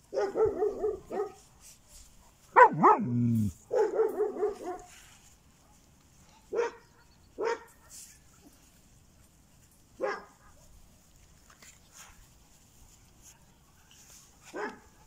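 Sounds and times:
dog barking: 0:00.1 - 0:01.4, 0:02.2 - 0:04.9, 0:06.5 - 0:07.9, 0:10.0 - 0:10.7, 0:14.4 - 0:14.9.

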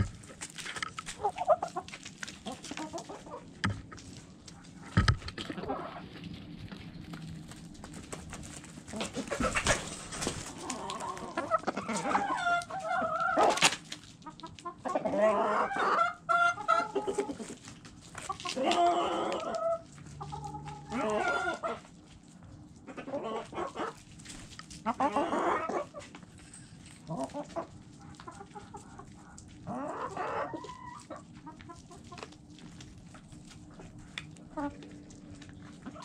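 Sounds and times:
chickens clucking: 0:00.0 - 0:36.0
beaks pecking at food: 0:27.0 - 0:36.0.

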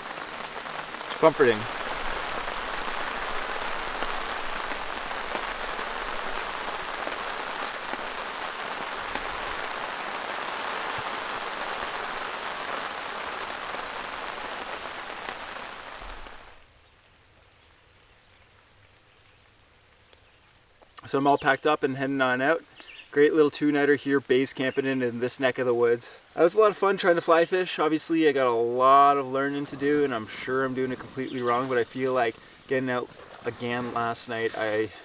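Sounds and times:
rain on a tarp: 0:00.0 - 0:35.0.

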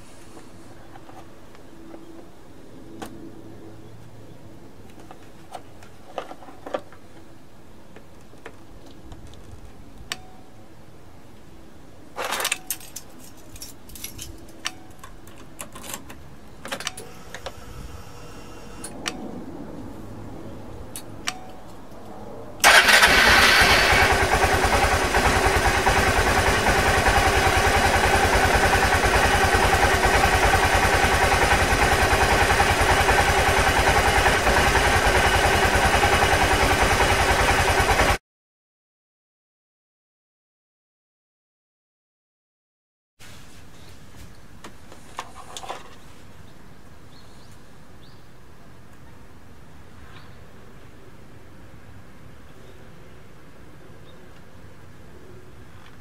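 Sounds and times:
scooter engine starting and running: 0:22.6 - 0:38.2.

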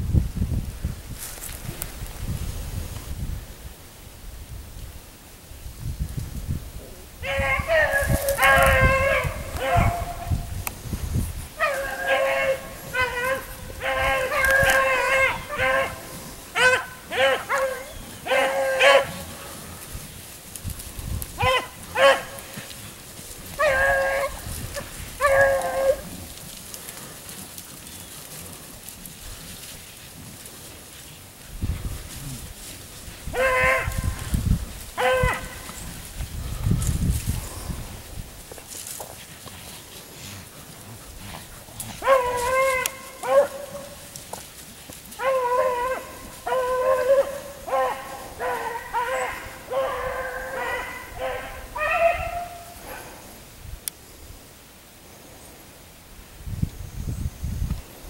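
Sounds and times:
hounds baying: 0:07.2 - 0:10.5, 0:11.5 - 0:29.8, 0:32.6 - 0:36.1, 0:39.7 - 0:53.3.

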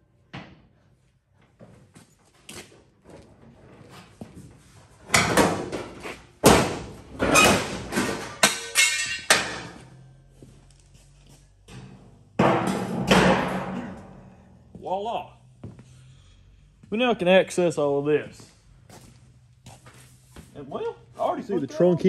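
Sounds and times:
metal panel clanking and rattling: 0:11.7 - 0:14.2.

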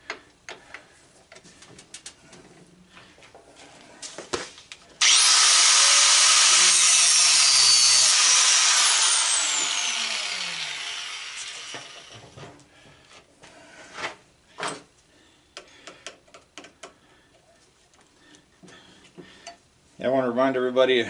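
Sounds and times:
grinder cutting metal: 0:05.0 - 0:12.2
grinder disc whining down: 0:05.0 - 0:12.4.

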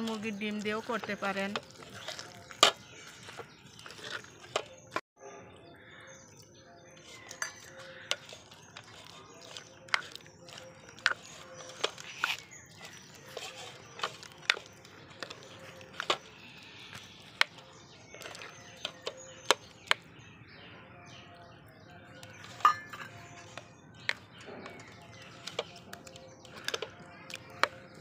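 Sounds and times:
spoon scraping batter: 0:00.0 - 0:05.0, 0:05.8 - 0:20.2, 0:21.3 - 0:28.0
spoon clinking against glass bowl: 0:07.1 - 0:15.5, 0:22.3 - 0:23.6.

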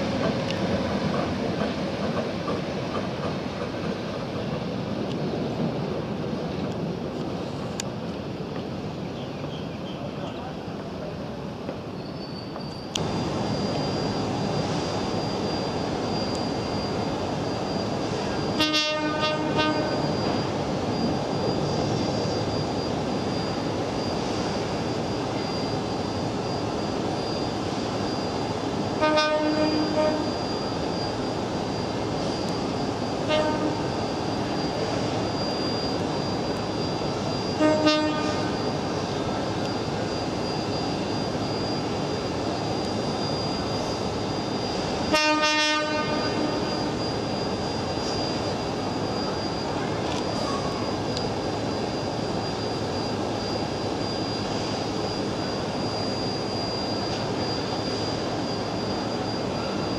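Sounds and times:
high steady whine: 0:00.0 - 0:09.1, 0:10.0 - 0:59.9
trains standing at a station: 0:00.0 - 0:59.9
train horn blasts: 0:18.6 - 0:20.0, 0:29.0 - 0:30.3, 0:33.2 - 0:33.8, 0:37.6 - 0:38.5, 0:45.1 - 0:46.7.

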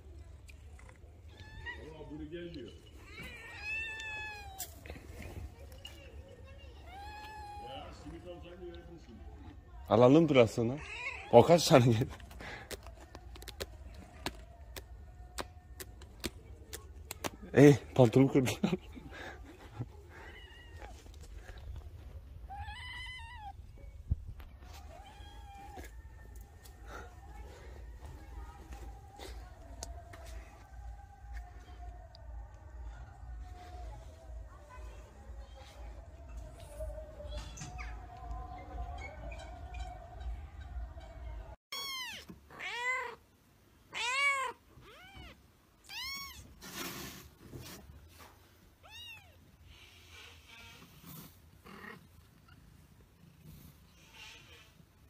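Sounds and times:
cat meowing: 0:03.0 - 0:04.7, 0:06.8 - 0:08.0, 0:10.8 - 0:11.4, 0:22.5 - 0:23.9, 0:24.6 - 0:26.3, 0:41.7 - 0:43.2, 0:43.9 - 0:46.6, 0:48.8 - 0:51.1
rustle: 0:44.4 - 0:55.0.

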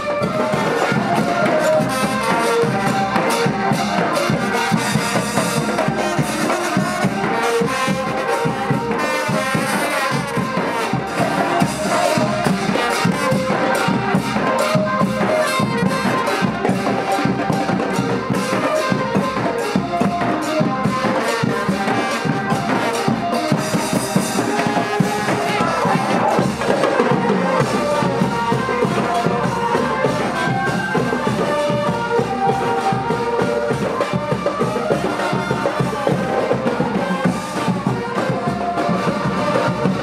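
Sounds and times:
bass drum and snare drum beat: 0:00.0 - 0:40.0
street brass band playing: 0:00.0 - 0:40.0.

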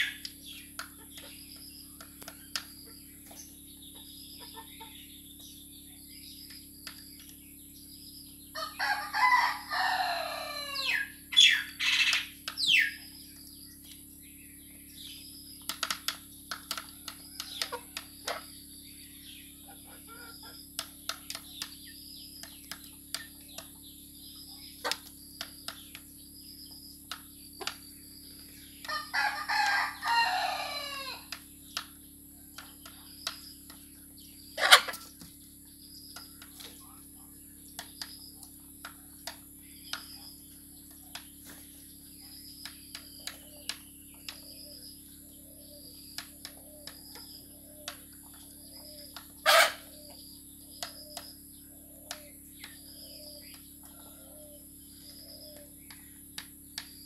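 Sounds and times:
rooster crowing: 0:08.6 - 0:11.6, 0:28.9 - 0:31.3
beaks tapping on bowl: 0:15.6 - 0:18.5
hens clucking: 0:24.8 - 0:25.1, 0:34.6 - 0:35.2, 0:46.4 - 0:50.2.

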